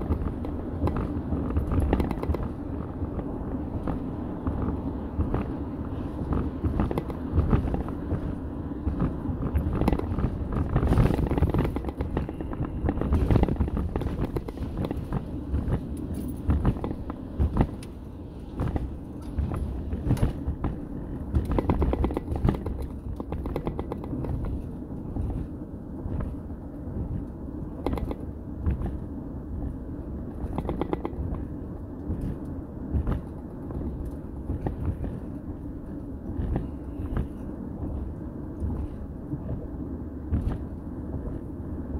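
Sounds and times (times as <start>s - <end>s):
knocks and rattles: 0.0s - 2.9s, 6.2s - 25.5s, 27.0s - 29.0s, 29.6s - 31.5s
truck road and engine rumble: 0.0s - 41.9s.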